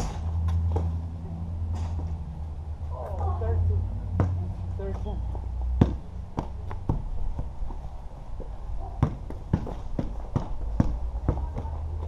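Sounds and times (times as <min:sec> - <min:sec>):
basketball bouncing on concrete: 0:04.2 - 0:04.4, 0:05.8 - 0:07.8, 0:08.8 - 0:12.0.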